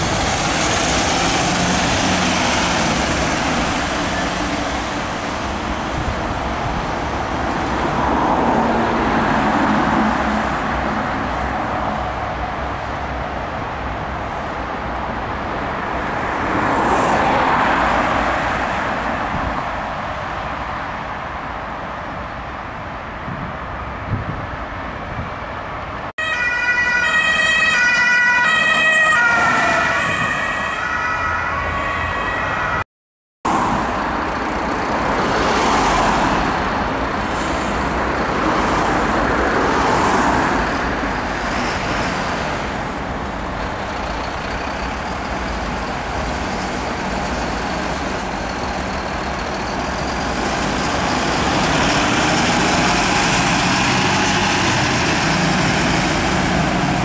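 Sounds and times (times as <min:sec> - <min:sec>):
truck diesel engine passing: 0:00.0 - 0:14.0, 0:33.5 - 0:57.0
road noise: 0:00.0 - 0:57.0
two-tone emergency siren: 0:26.2 - 0:32.8.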